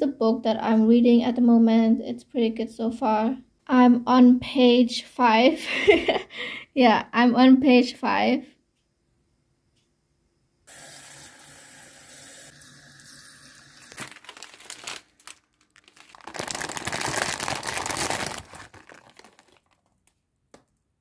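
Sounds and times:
plastic packet crinkling: 0:13.8 - 0:20.8.

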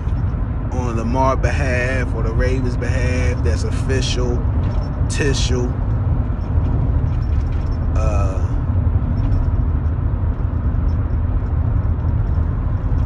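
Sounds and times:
vehicle rumble: 0:00.0 - 0:13.0
man's voice: 0:00.7 - 0:04.4, 0:05.1 - 0:05.8, 0:08.0 - 0:08.6.

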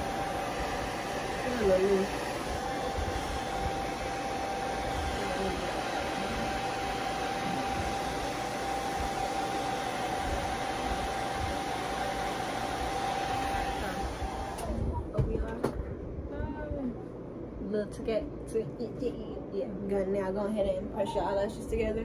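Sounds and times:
hair dryer running: 0:00.0 - 0:15.0.

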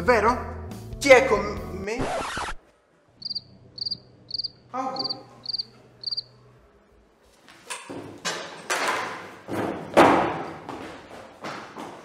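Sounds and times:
running footsteps on tiled floor: 0:07.2 - 0:12.0.

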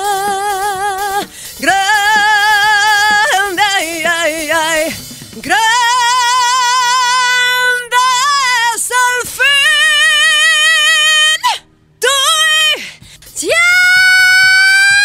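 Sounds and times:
singer breathing: 0:01.2 - 0:01.6, 0:12.8 - 0:13.4.

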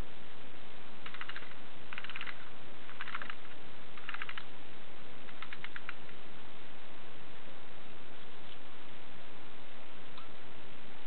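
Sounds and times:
steady hiss: 0:00.0 - 0:11.0
toy mechanism rattling clicks: 0:01.0 - 0:04.5, 0:05.3 - 0:06.0.

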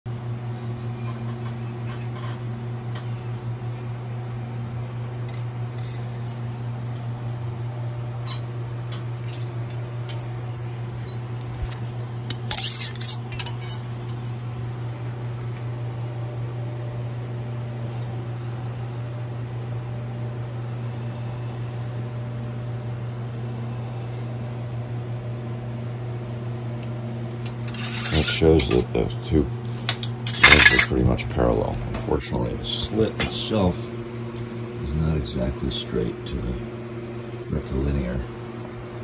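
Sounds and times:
steady low hum: 0:00.1 - 0:39.0
metal tools clinking on steel table: 0:08.3 - 0:14.4, 0:27.4 - 0:29.1, 0:29.7 - 0:31.0.

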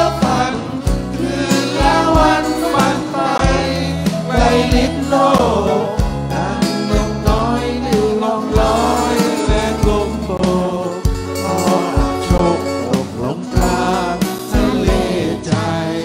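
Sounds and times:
live band playing: 0:00.0 - 0:16.0
steady drum beat: 0:00.0 - 0:16.0.

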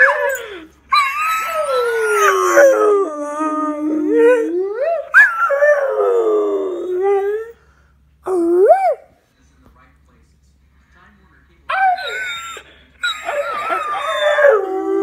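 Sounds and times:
dog howling: 0:00.0 - 0:07.5, 0:11.7 - 0:15.0.

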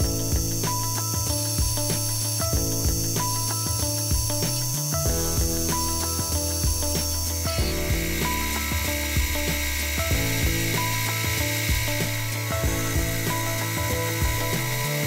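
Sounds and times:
cutting tool hiss: 0:00.0 - 0:15.0
plucked background music: 0:00.0 - 0:15.0
metal lathe cutting: 0:05.5 - 0:15.0.

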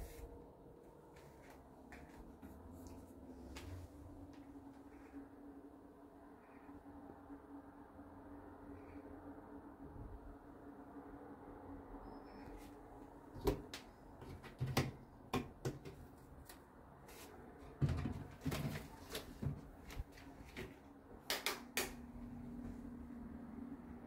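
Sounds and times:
low steady hum: 0:00.0 - 0:24.0.

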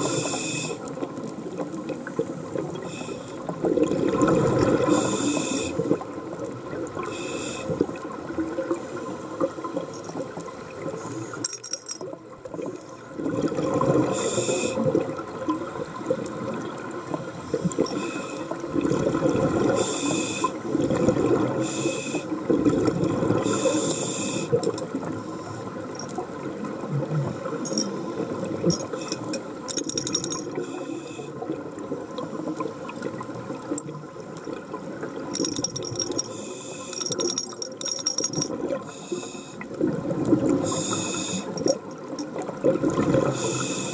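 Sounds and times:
hissing regulator inhalations: 0:00.0 - 0:00.8, 0:04.9 - 0:05.8, 0:07.1 - 0:07.8, 0:14.2 - 0:14.8, 0:17.8 - 0:18.6, 0:19.8 - 0:20.6, 0:21.6 - 0:22.3, 0:23.5 - 0:24.6, 0:28.8 - 0:29.5, 0:30.6 - 0:31.4, 0:36.0 - 0:37.4, 0:38.9 - 0:39.6, 0:40.6 - 0:41.7, 0:43.3 - 0:43.9.

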